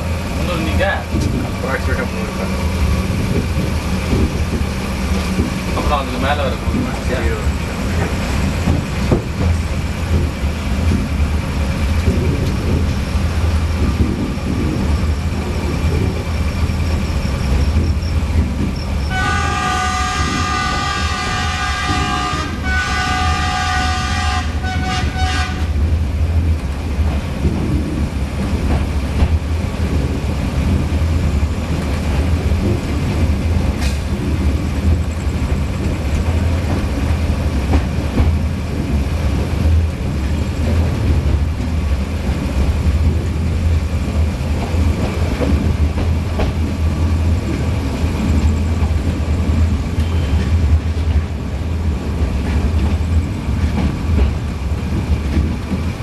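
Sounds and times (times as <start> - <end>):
train running low rumble: 0.0 - 56.0
multi-tone train horn: 19.1 - 25.8.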